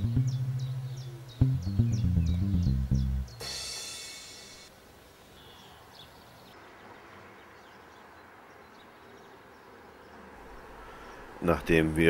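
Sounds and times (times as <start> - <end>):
low hum: 0.0 - 3.4
faint bird chirps: 5.2 - 6.6.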